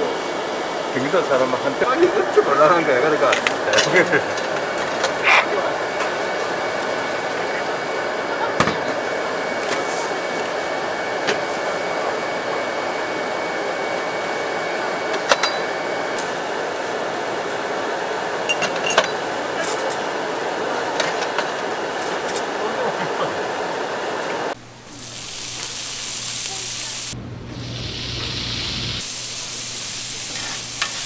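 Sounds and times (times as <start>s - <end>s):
busy food stall din: 0.0s - 31.0s
utensils clinking: 3.3s - 5.2s, 18.4s - 20.0s.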